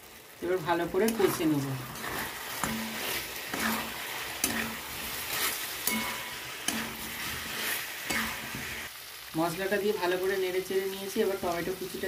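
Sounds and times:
chicken sizzling in oil: 0.0s - 12.0s
spatula scraping pan: 1.0s - 8.9s.

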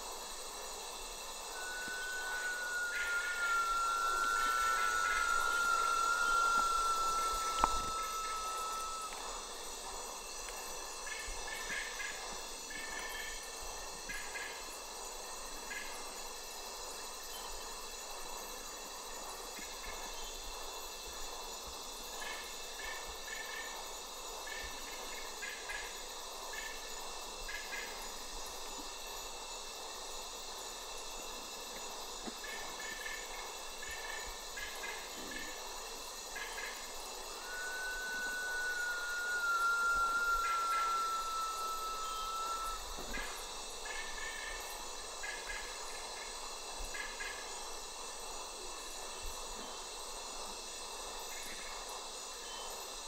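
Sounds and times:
insect chorus: 0.0s - 53.0s
long falling bird whistle: 1.0s - 9.7s, 36.3s - 44.3s.

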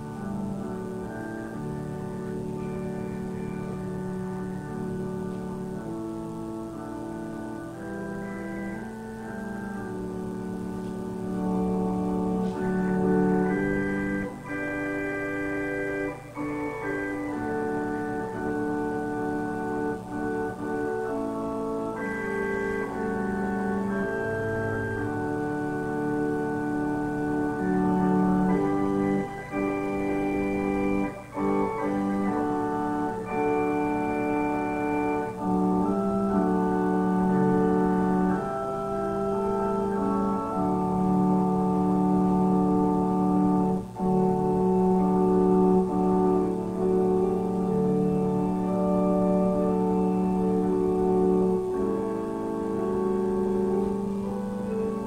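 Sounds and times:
organ playing slow chords: 0.0s - 55.0s.

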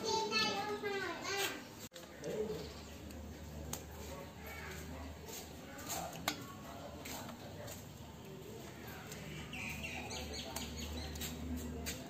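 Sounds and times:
birds chirping: 8.0s - 12.0s.

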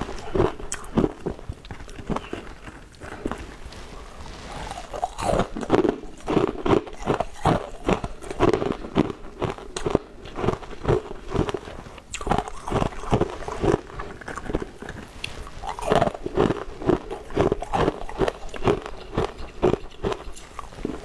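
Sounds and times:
crunching ice cubes: 4.5s - 21.0s.

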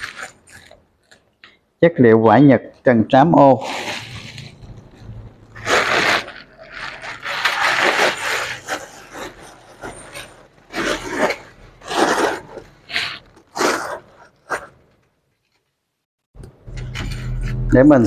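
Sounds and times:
plastic bag crinkling: 0.0s - 1.3s, 3.6s - 15.7s.

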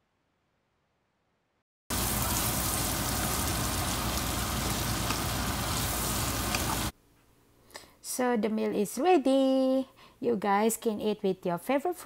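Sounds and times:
food sizzling in a frying pan: 1.9s - 6.9s.

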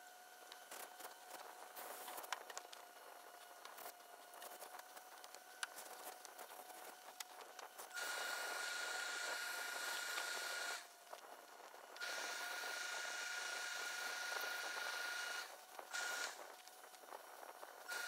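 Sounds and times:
steam press hissing: 8.0s - 10.9s, 12.0s - 16.4s.

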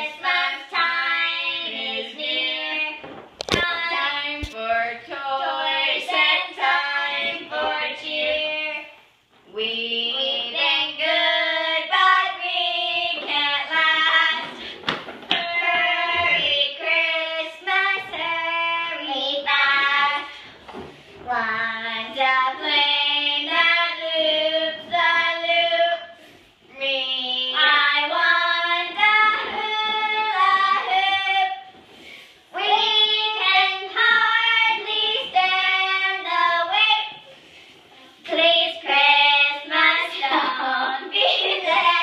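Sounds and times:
two women singing: 0.0s - 20.5s, 21.2s - 31.7s.

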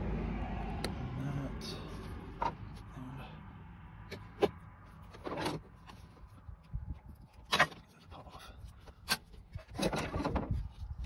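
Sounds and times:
rustling and scraping: 4.1s - 11.0s
wind rumble on microphone: 6.2s - 7.5s, 9.4s - 11.0s.

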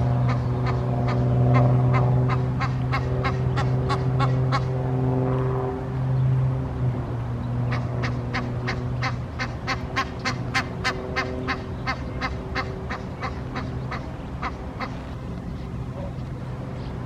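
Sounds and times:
goose honking: 0.2s - 4.7s.

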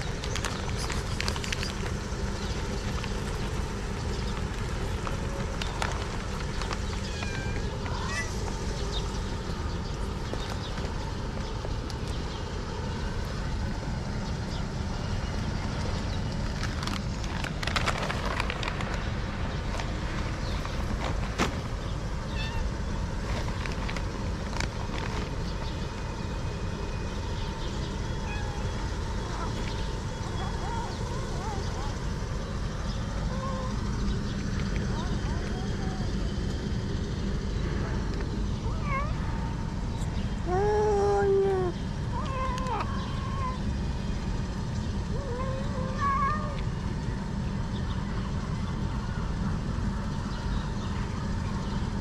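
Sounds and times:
low outdoor background rumble: 0.0s - 52.0s
cat meowing: 7.0s - 8.4s, 22.3s - 22.7s, 38.7s - 39.2s.

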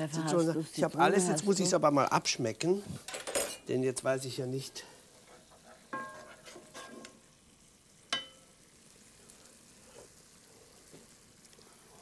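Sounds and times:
sauce simmering with faint sizzle: 0.0s - 12.0s
metal spoon clink: 5.9s - 6.3s, 8.1s - 8.5s.

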